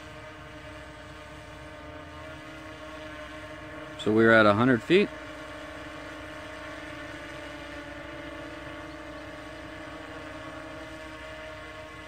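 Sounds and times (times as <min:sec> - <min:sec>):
quadcopter propellers humming: 0:00.0 - 0:12.0.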